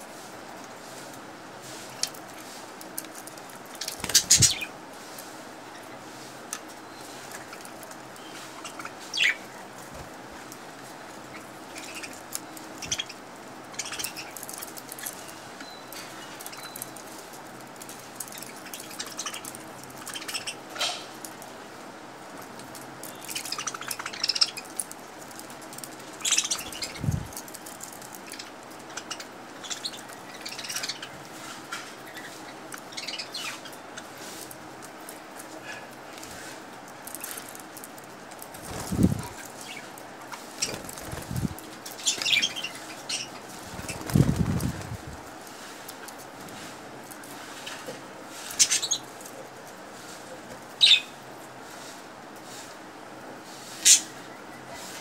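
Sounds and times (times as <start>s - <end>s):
budgerigars chirping: 12.8s - 14.4s, 23.2s - 24.7s, 28.3s - 31.2s.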